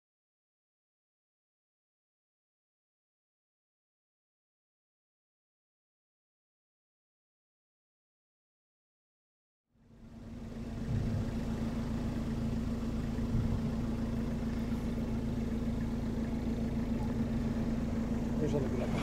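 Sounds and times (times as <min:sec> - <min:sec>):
car engine idling: 0:09.8 - 0:19.0.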